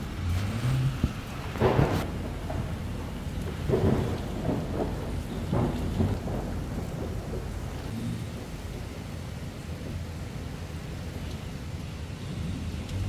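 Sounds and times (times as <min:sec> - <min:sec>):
rolling thunder: 0:00.0 - 0:13.0
steady rain: 0:00.0 - 0:13.0.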